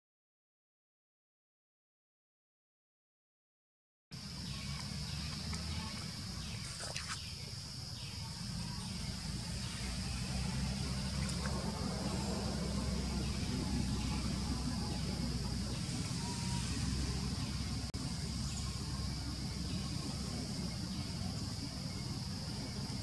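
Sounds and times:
high insect drone: 4.2s - 23.0s
low rumble: 8.3s - 23.0s.

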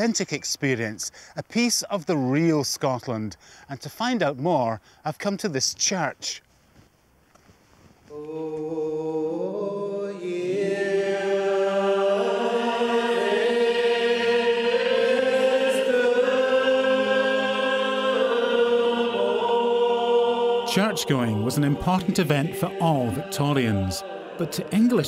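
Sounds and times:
person singing alone: 8.1s - 13.4s, 20.6s - 25.0s
congregation singing psalm: 8.1s - 25.0s.

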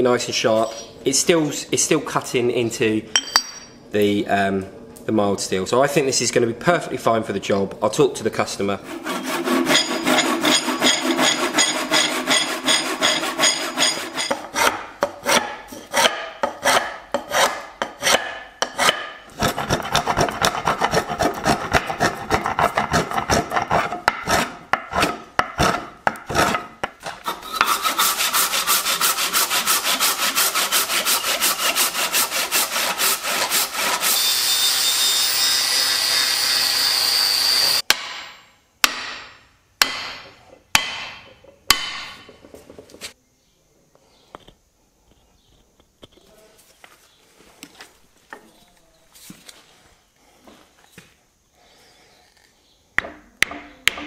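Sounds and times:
rasping strokes on wood: 8.7s - 34.5s
power tool running: 33.8s - 37.8s
angle grinder whine on steel: 34.0s - 37.8s.

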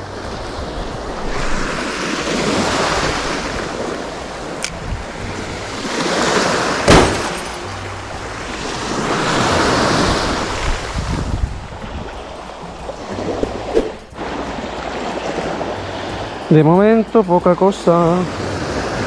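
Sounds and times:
small waves washing up beach: 0.0s - 19.0s
sharp click: 4.6s - 4.8s.

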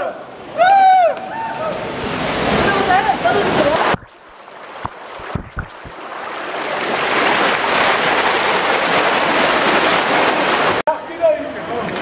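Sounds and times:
stream rushing over rocks: 1.8s - 10.8s.

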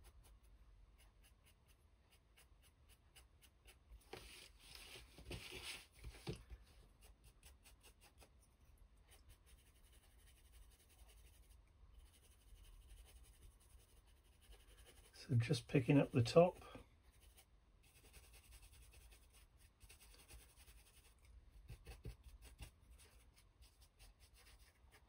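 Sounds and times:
small brush scratching: 0.0s - 25.0s
scuffing and rubbing: 4.0s - 6.4s.

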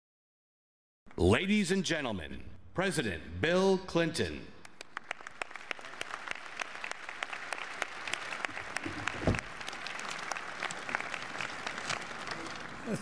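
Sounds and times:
audience applauding: 4.8s - 13.0s
low thump: 9.2s - 9.5s.

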